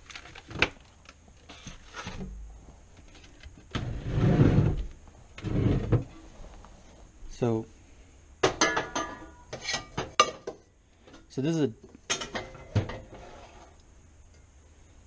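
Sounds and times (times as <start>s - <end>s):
heavy pot sliding: 3.7s - 6.6s, 12.4s - 13.8s.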